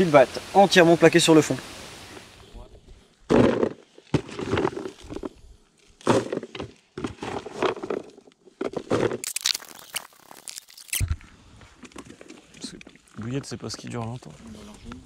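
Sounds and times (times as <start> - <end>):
bait balls clattering in bucket: 3.3 - 5.3, 6.0 - 10.4.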